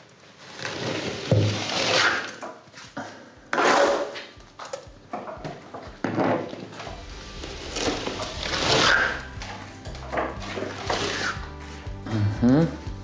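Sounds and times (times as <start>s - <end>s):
trowel scraping plaster: 0.6s - 2.4s, 7.3s - 9.3s, 10.4s - 11.4s.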